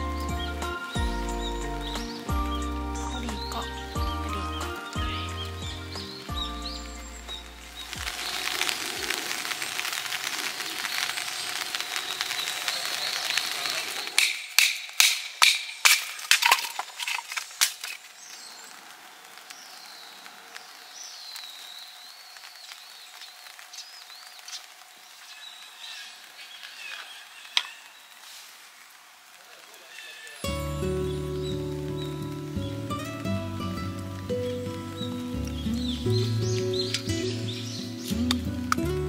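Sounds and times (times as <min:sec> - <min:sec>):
birds chirping faintly: 0:00.0 - 0:15.8, 0:16.4 - 0:28.3, 0:29.2 - 0:39.0
rustling: 0:03.1 - 0:39.0
wood cracking and knocking: 0:14.1 - 0:18.2.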